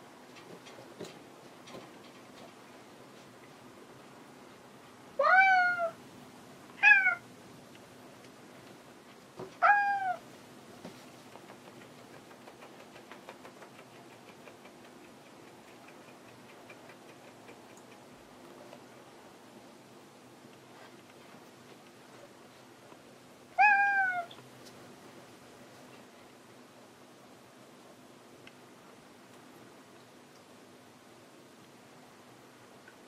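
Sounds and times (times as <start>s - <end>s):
cat meowing: 5.2s - 6.0s, 6.8s - 7.2s, 9.6s - 10.2s, 23.6s - 24.3s.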